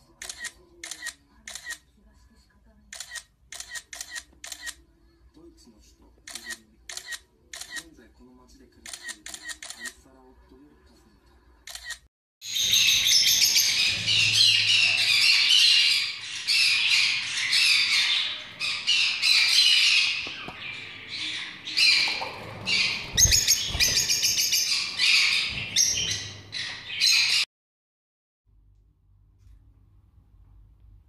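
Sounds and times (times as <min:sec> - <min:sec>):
lovebirds squawking and chirping: 0:12.4 - 0:27.4.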